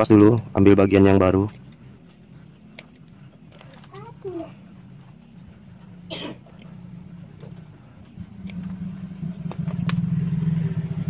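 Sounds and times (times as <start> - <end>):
engine rumbling: 0.0 - 11.0.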